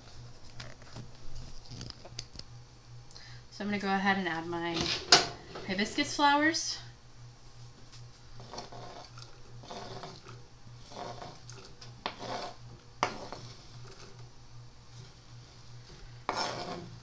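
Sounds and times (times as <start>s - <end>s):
knife scraping cutting board: 8.4s - 14.2s, 16.3s - 16.9s.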